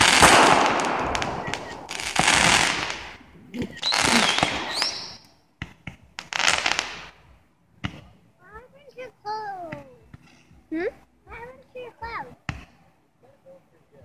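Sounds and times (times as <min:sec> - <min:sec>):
rising firework whistle: 0:00.0 - 0:03.1, 0:03.8 - 0:05.4
sharp firework pops: 0:00.0 - 0:07.2, 0:07.8 - 0:08.2, 0:12.4 - 0:12.8
fireworks whooshing upward: 0:00.0 - 0:07.3.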